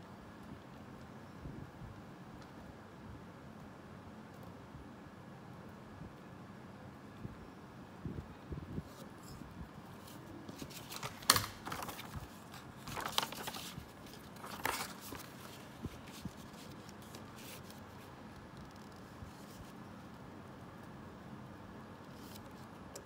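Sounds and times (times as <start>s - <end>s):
paper rustling: 8.9s - 19.8s.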